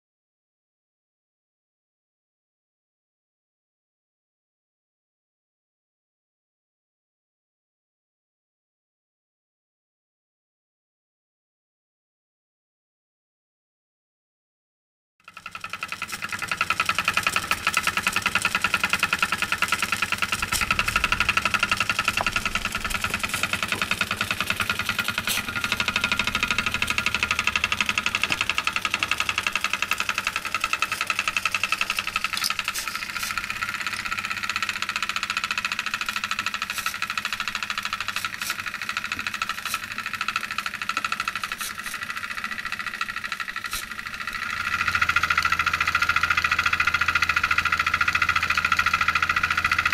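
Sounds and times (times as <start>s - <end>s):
steam engine exhaust beat: 15.9s - 35.7s.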